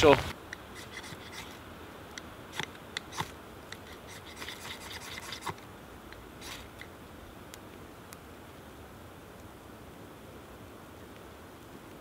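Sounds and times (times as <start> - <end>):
fire steel scraping bark: 0.0 - 6.9.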